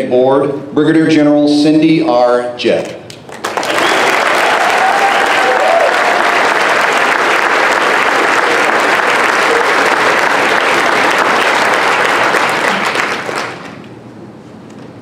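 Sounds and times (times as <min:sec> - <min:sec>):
audience applauding: 0:03.2 - 0:13.9.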